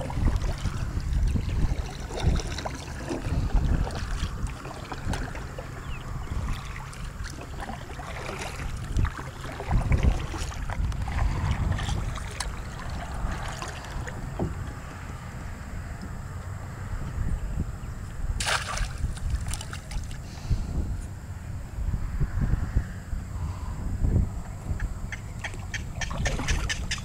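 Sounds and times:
paddle stroking through water: 0:00.0 - 0:16.2, 0:25.4 - 0:27.0
wind buffeting microphone: 0:00.0 - 0:27.0
light splashes and knocks: 0:18.4 - 0:20.2.

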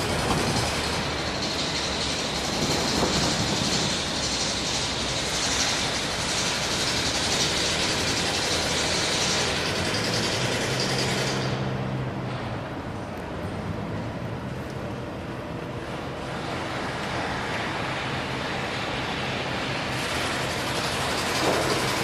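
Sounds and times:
generator rattling and hissing: 0:00.0 - 0:12.8, 0:15.5 - 0:22.0.

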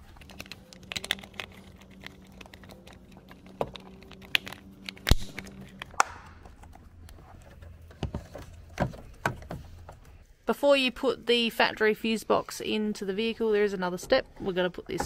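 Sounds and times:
low steady hum: 0:00.0 - 0:15.0
sharp plastic snap: 0:04.2 - 0:06.4.

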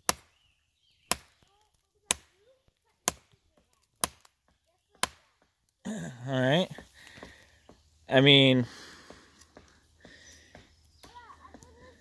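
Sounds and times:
knife chopping tree trunk: 0:00.0 - 0:00.4, 0:01.0 - 0:01.4, 0:03.0 - 0:05.5.

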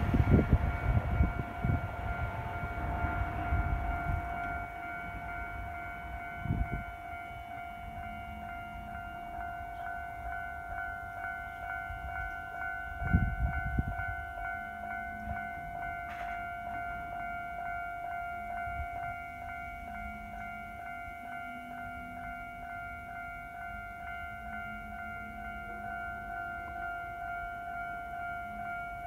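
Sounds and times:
level crossing warning bell ringing: 0:00.0 - 0:29.0.

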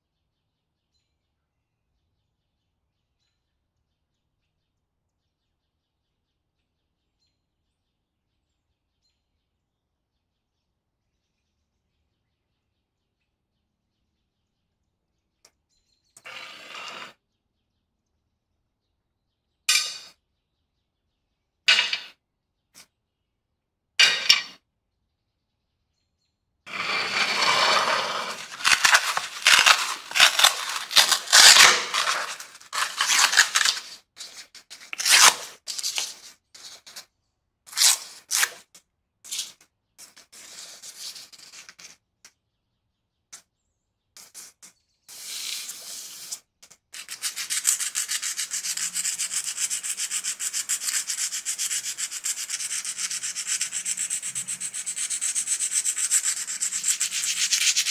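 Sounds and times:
sandpaper rubbing on metal: 0:26.7 - 0:37.0, 0:47.0 - 0:57.9.

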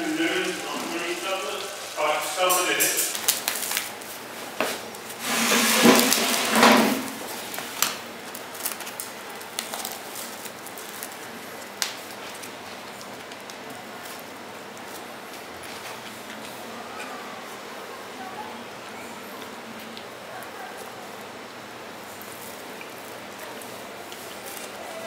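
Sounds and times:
crusty bread tearing: 0:07.1 - 0:16.6, 0:22.0 - 0:25.0.

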